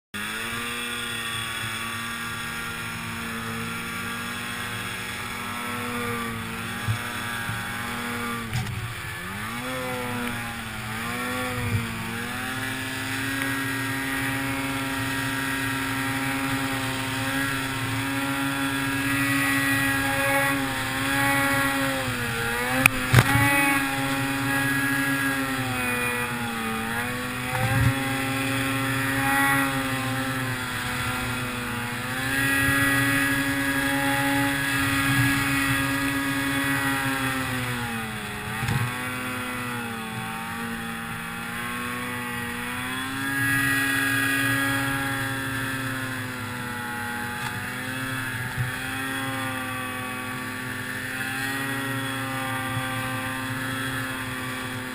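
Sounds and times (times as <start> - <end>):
snowmobile engine revving: 0.2 - 54.9.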